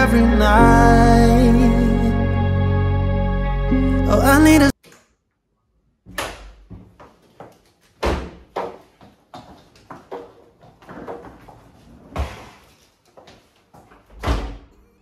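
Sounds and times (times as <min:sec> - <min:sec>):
door shutting with a thud: 0:14.1 - 0:14.7.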